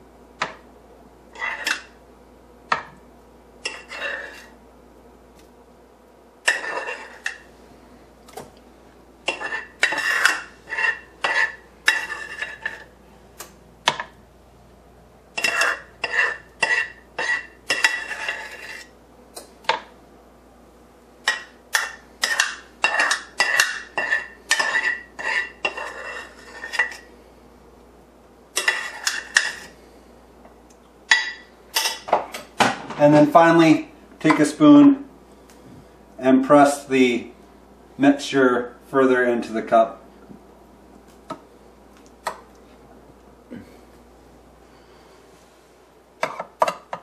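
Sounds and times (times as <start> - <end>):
spoon scraping a frying pan: 1.3 - 2.0, 3.6 - 4.6, 6.4 - 7.5, 9.2 - 12.9, 15.3 - 18.9, 21.3 - 27.1, 28.5 - 29.9, 46.2 - 47.0.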